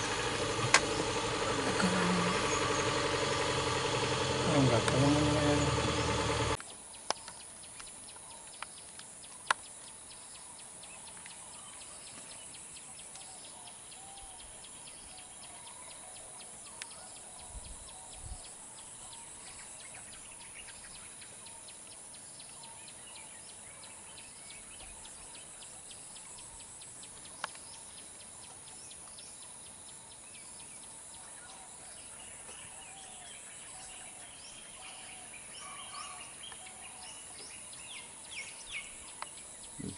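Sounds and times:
birds chirping and calling: 0.0 - 6.6, 31.5 - 39.9
engine idling: 0.0 - 6.6
outdoor background hiss: 0.0 - 16.7, 17.5 - 39.9
sharp clicks: 0.3 - 1.8
person speaking: 0.6 - 3.0, 4.3 - 6.2.

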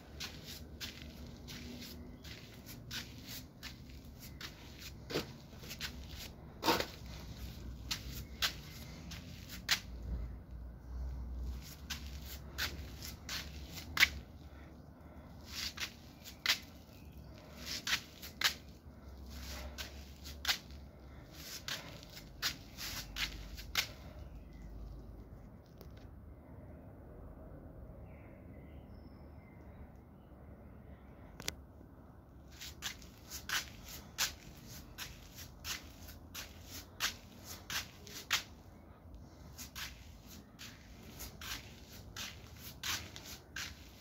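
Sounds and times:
footsteps on brick paving: 0.0 - 10.1, 11.4 - 24.2, 32.5 - 44.0.

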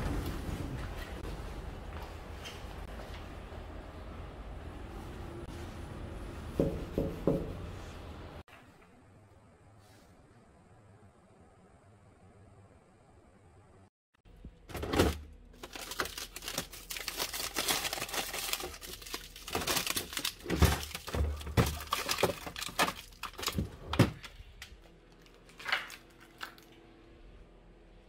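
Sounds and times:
dull thumps of frozen packets: 14.7 - 24.3
plastic pouches crinkling: 15.6 - 23.8.

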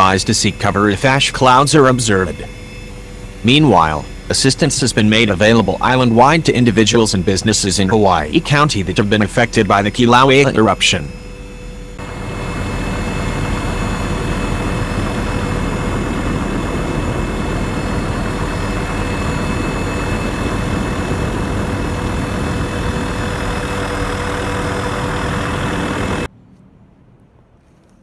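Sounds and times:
helicopter engine and rotor: 0.0 - 26.3
faint whine: 0.0 - 28.0.

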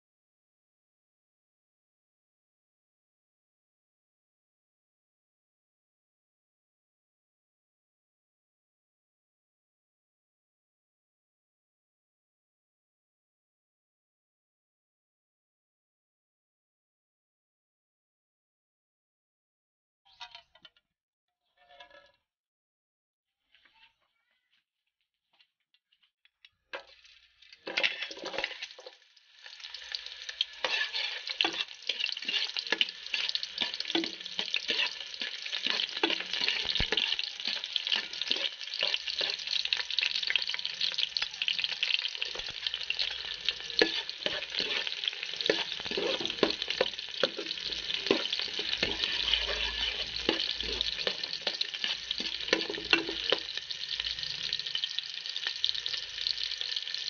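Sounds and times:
shallots and garlic sizzling in oil: 26.5 - 57.0.

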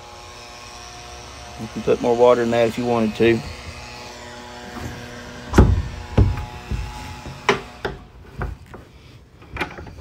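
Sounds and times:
dull knocks on fiberglass deck: 5.5 - 8.6.

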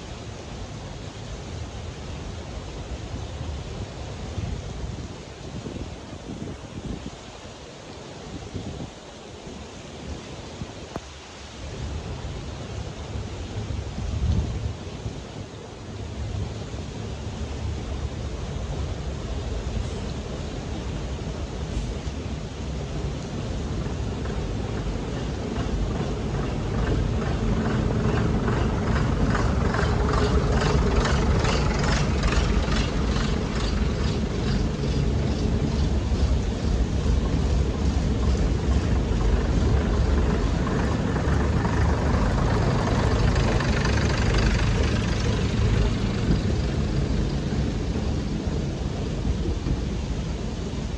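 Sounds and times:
diesel train engines droning: 15.6 - 50.9.

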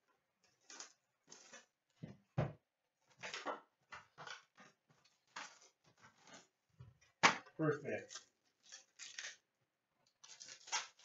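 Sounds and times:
cardboard and wrapper rustling: 4.0 - 6.6, 10.1 - 11.0.

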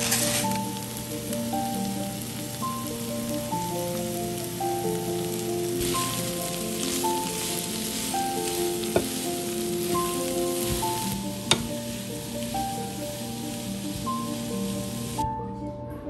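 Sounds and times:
vegetables sizzling in frying pan: 0.0 - 15.2
background music: 0.0 - 16.0
utensil tapping pan: 5.8 - 15.2.

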